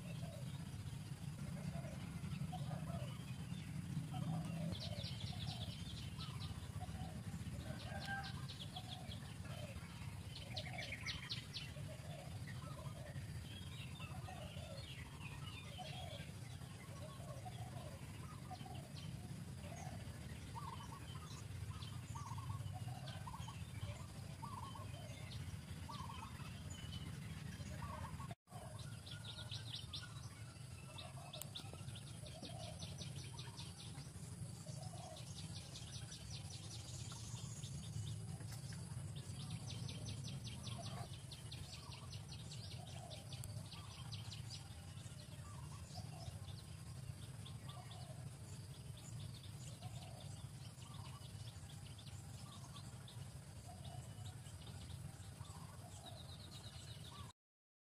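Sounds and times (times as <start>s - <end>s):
birds calling: 0.0s - 57.3s
low background rumble: 0.0s - 57.3s.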